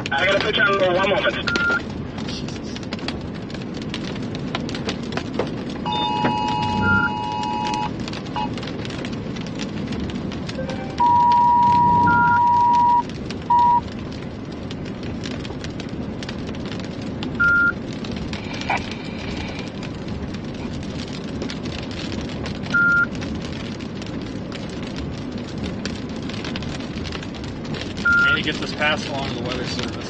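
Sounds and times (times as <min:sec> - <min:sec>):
rain on vehicle: 0:00.0 - 0:30.0
tyres on wet road: 0:00.0 - 0:30.0
electronic beeps: 0:01.4 - 0:01.8, 0:05.9 - 0:07.9, 0:10.6 - 0:13.8, 0:17.4 - 0:17.7, 0:28.1 - 0:28.4.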